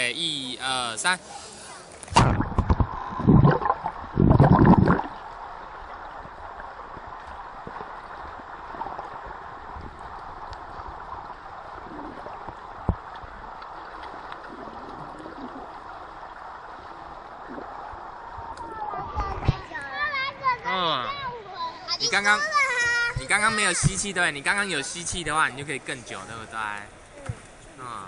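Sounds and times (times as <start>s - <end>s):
muffled underwater hiss: 1.2s - 19.8s
water splashing and bubbling: 2.0s - 19.8s.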